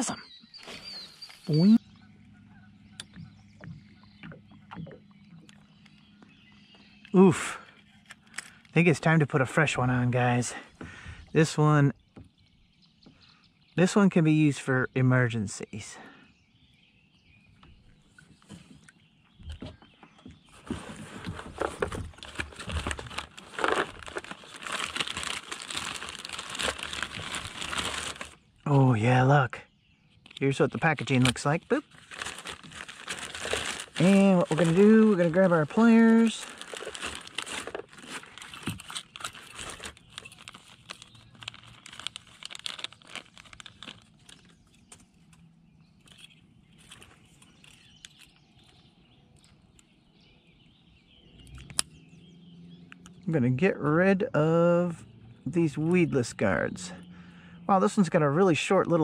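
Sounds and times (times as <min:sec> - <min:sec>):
small handling sounds: 0:20.5 - 0:28.4, 0:30.2 - 0:45.4, 0:46.0 - 0:49.9
plastic bag crinkling: 0:20.6 - 0:28.4, 0:30.8 - 0:44.7.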